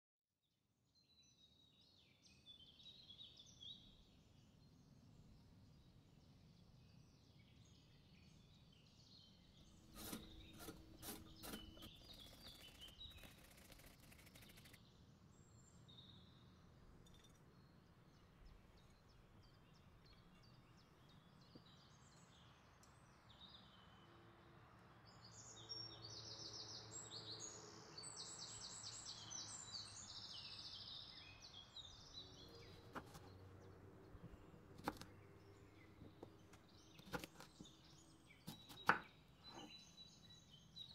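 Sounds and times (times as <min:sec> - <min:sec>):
quick repeated scraping: 0:09.8 - 0:14.8.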